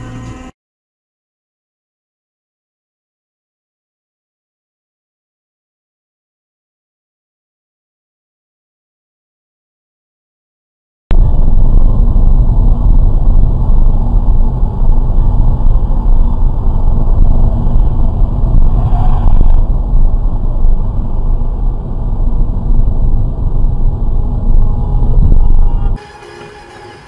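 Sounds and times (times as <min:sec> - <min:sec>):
vehicle engine and road noise: 0:00.0 - 0:00.5, 0:11.1 - 0:27.0.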